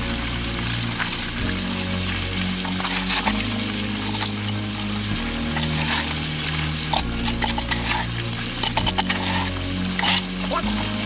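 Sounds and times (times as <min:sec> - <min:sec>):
background music low notes: 0:00.0 - 0:11.0
bucket scraping and knocking: 0:02.6 - 0:04.6, 0:05.4 - 0:11.0.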